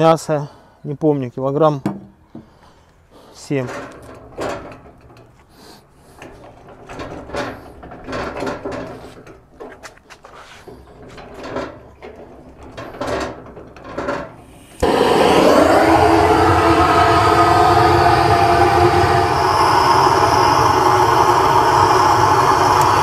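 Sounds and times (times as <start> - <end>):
gas torch hissing: 14.5 - 23.0.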